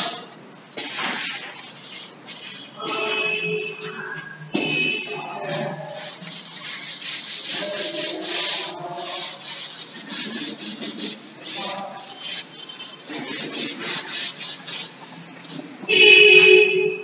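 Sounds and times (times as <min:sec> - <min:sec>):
eraser rubbing chalkboard: 0:00.0 - 0:16.0.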